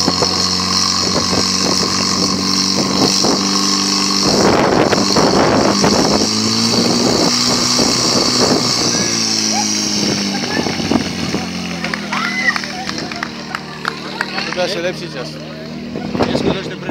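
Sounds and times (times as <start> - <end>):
pump engine running: 0.0 - 16.9.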